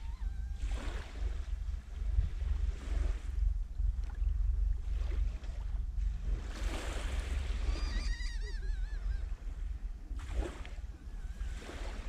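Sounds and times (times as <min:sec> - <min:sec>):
wind rumbling on microphone: 0:00.0 - 0:12.0
small waves lapping on sand: 0:06.2 - 0:08.6, 0:09.3 - 0:12.0
bird calling: 0:07.6 - 0:09.4.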